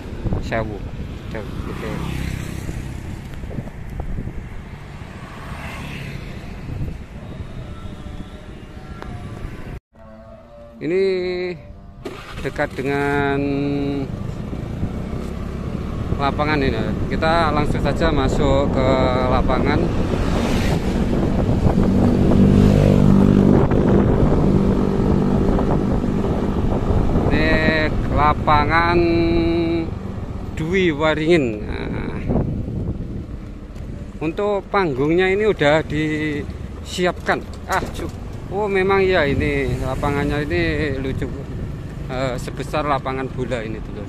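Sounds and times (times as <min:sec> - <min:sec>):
vehicle engine rumble: 0:00.0 - 0:10.6, 0:11.2 - 0:44.0
road noise: 0:00.0 - 0:44.0
wind on microphone: 0:02.5 - 0:05.1, 0:06.2 - 0:09.8, 0:13.6 - 0:30.4, 0:31.5 - 0:34.2.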